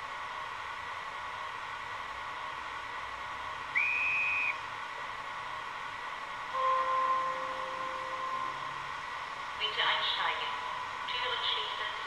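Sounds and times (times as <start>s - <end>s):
faint hiss: 3.6s - 12.0s
high whistle: 3.7s - 4.6s
locomotive horn tone: 6.6s - 8.7s.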